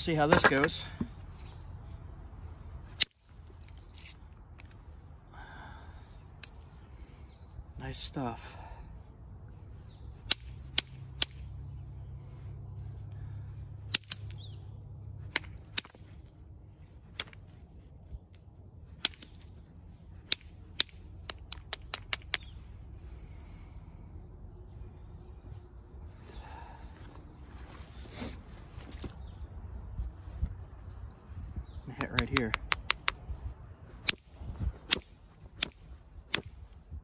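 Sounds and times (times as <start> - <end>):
stone knapping clicks: 20.2 - 22.5, 32.0 - 33.2
light stone taps: 31.9 - 33.2.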